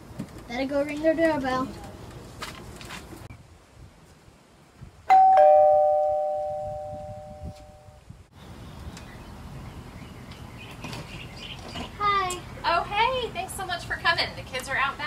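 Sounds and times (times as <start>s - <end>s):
doorbell ding-dong chime: 5.1s - 7.5s.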